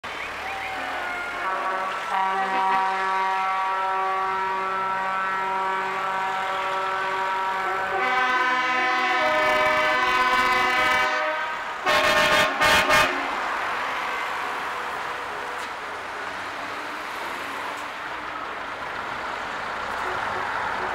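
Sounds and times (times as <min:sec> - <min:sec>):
truck horn blasts: 0:00.8 - 0:13.4.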